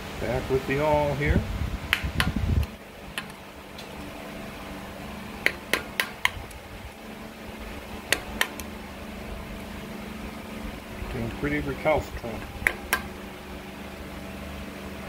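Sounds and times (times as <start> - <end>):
metal-on-metal clicks: 3.2 - 3.9, 5.4 - 6.6, 8.1 - 8.7.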